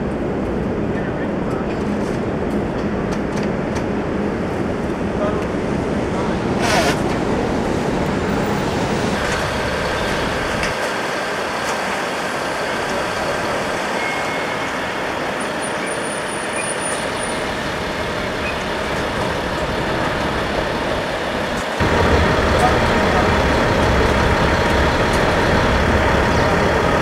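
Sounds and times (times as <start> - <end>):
diesel engine running: 7.2 - 27.0.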